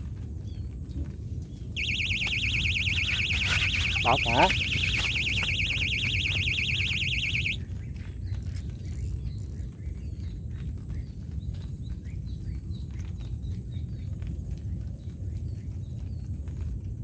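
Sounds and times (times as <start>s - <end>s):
electronic alarm warbling tone: 1.8s - 7.6s.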